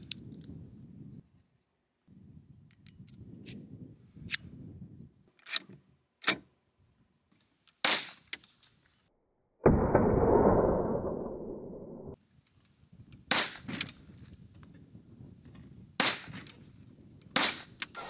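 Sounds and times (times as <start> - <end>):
metallic clicks of magazine seating: 0.0 - 0.5, 5.3 - 6.5.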